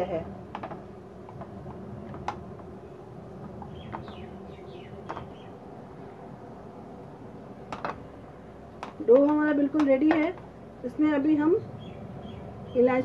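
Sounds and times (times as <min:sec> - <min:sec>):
small bird chirping: 0:02.8 - 0:05.6, 0:11.6 - 0:13.0.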